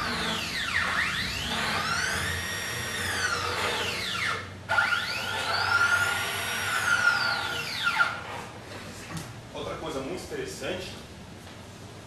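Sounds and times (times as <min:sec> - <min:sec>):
stepper motor whine: 0:00.0 - 0:08.2.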